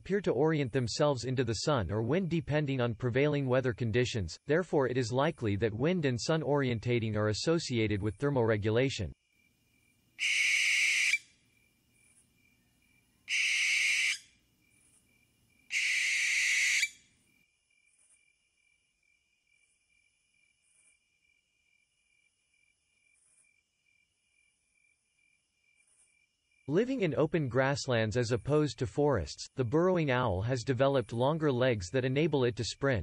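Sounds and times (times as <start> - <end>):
owl giving harsh calls: 10.2 - 11.3, 13.3 - 14.3, 15.7 - 17.0.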